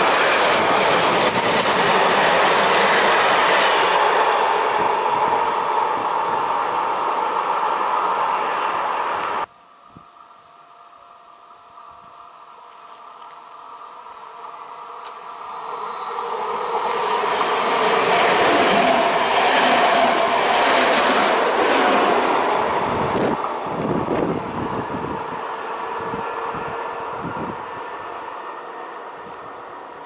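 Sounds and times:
train rushing past: 0.0s - 9.5s, 14.6s - 30.0s
rhythmic train wheel clacks: 0.5s - 3.2s.

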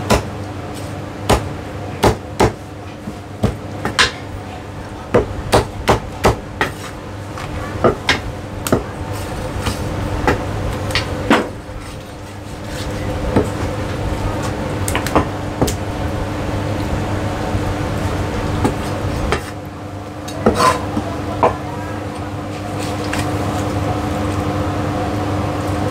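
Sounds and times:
steady hum: 0.0s - 25.9s
cleaver chopping on wooden block: 0.1s - 0.3s, 1.3s - 2.6s.

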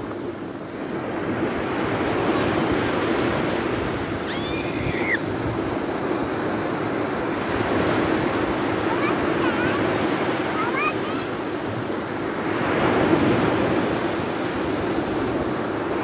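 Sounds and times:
sea waves breaking on beach: 0.0s - 16.0s
brief high-pitched squeal: 4.3s - 5.2s.

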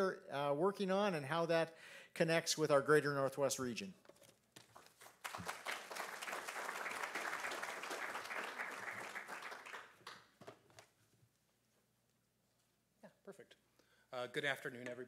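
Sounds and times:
audience applauding: 4.8s - 10.4s.

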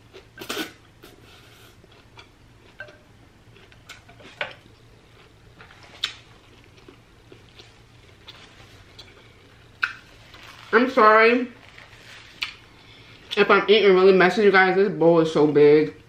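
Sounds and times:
chewing with clicks and smacks: 1.9s - 9.2s.

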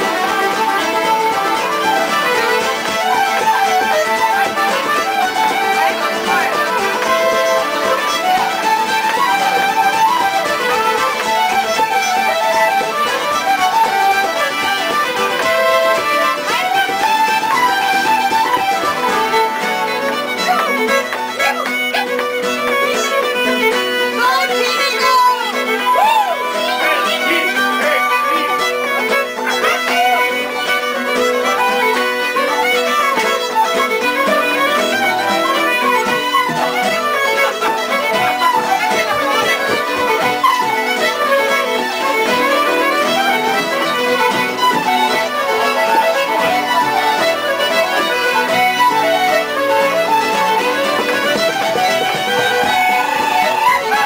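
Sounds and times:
fiddle playing a tune: 0.0s - 54.0s
guitar accompaniment: 0.0s - 54.0s.

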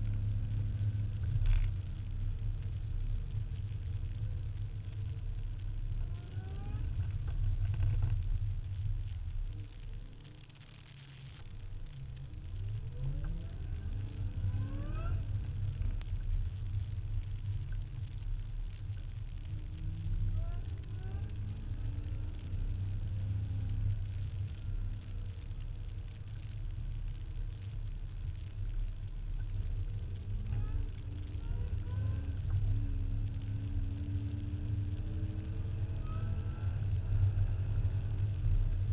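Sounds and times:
road and wind rumble: 0.0s - 38.9s
car engine revving: 29.9s - 38.9s.

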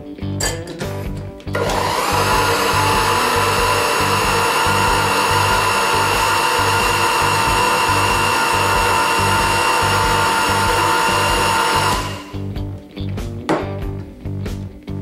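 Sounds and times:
music with steady beat: 0.0s - 15.0s
blender motor whining: 1.5s - 12.4s.

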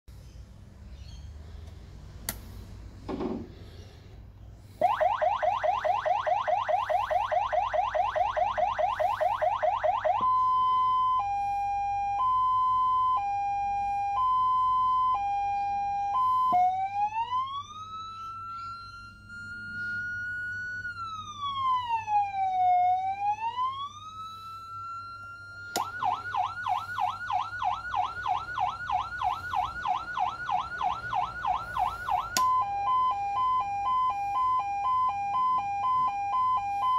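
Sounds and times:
electronic siren tones: 4.7s - 36.9s
siren switch click: 25.7s - 26.1s, 31.8s - 32.6s.

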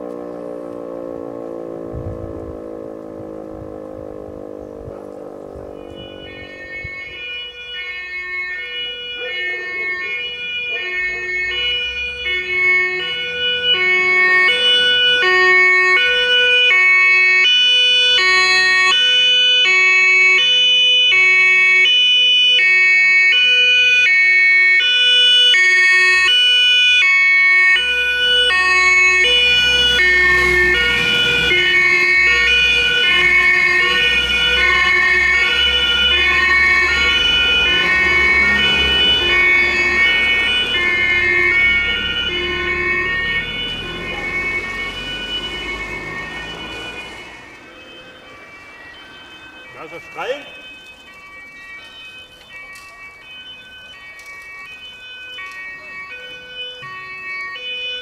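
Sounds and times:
low engine rumble: 0.0s - 8.0s
road noise: 0.0s - 58.0s
two-tone fire engine siren: 0.0s - 58.0s.

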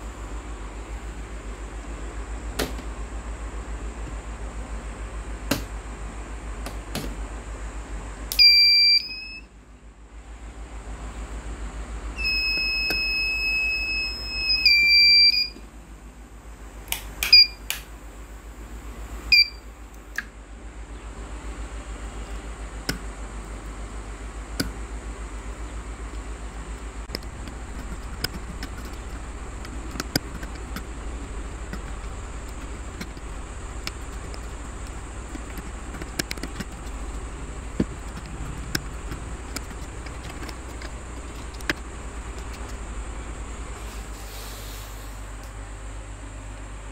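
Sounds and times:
low hum: 26.5s - 44.2s.

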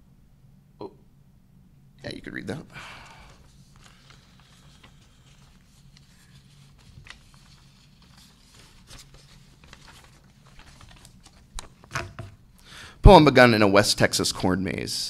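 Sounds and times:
low room hum: 0.0s - 15.0s
paper rustling: 3.1s - 12.4s.

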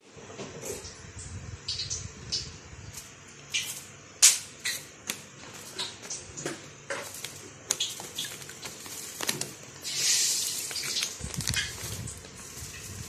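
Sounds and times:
plastic bag crinkling: 5.0s - 13.0s
salt pouring into water: 9.8s - 13.0s.

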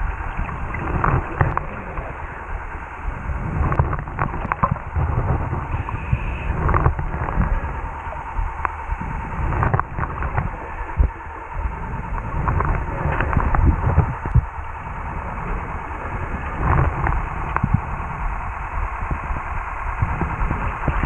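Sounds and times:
underwater rumble of moving water: 0.0s - 21.0s.

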